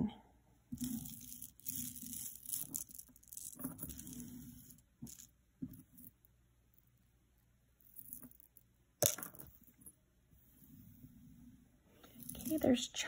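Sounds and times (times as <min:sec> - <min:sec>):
jewelry chains and beads clinking: 0:00.8 - 0:06.1, 0:12.1 - 0:12.8.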